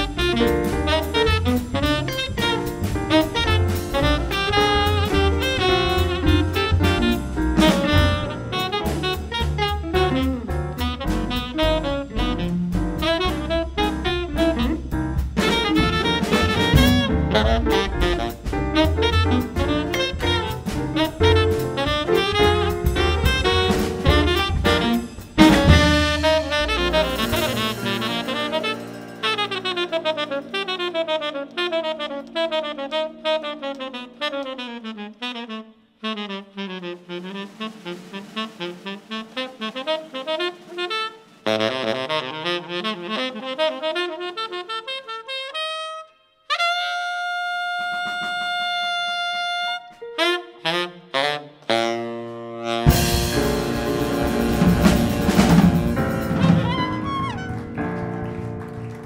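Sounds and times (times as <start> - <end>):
drum and cymbal rolls: 0.0 - 30.4, 37.0 - 42.7, 52.8 - 57.4
jazz band sustaining final chord: 0.0 - 33.8, 37.0 - 44.1, 52.8 - 59.0
piano: 0.0 - 59.0
tenor saxophone solo: 0.0 - 59.0.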